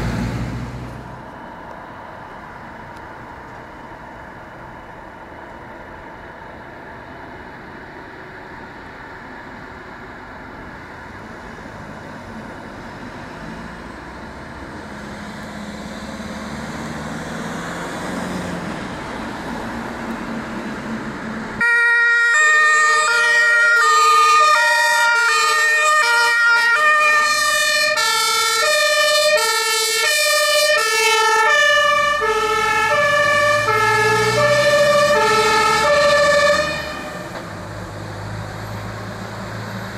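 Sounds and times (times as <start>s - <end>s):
fire engine driving: 0.0s - 39.9s
two-tone siren: 21.6s - 37.4s.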